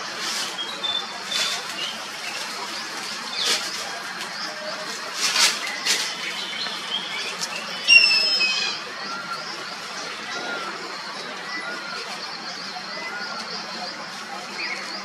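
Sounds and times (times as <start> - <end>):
faint high bird chirps: 0.4 - 3.7, 4.3 - 15.0
hornbill squealing call: 7.6 - 9.4.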